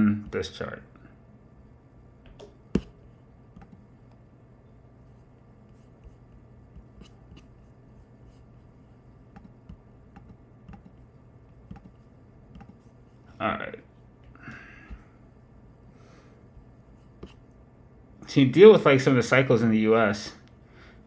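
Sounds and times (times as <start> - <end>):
steady low hum: 0.0 - 21.0
mouse and keyboard clicks: 11.7 - 12.0.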